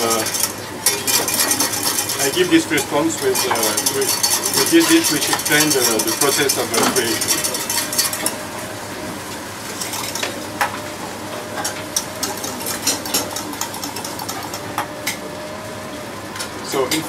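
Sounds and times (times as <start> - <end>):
whisk scraping a metal saucepan: 0.0 - 8.4
kitchen background noise: 0.0 - 17.0.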